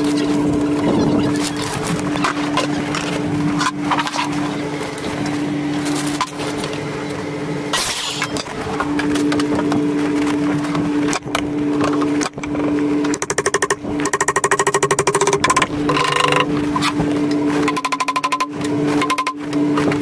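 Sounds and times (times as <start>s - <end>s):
steady mechanical hum: 0.0s - 20.0s
fast pulsing rattle: 13.1s - 16.5s.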